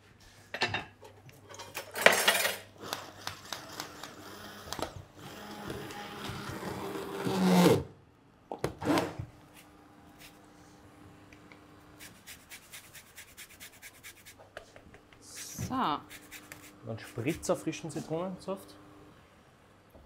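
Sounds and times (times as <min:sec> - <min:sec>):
immersion blender whirring: 0:03.8 - 0:07.9.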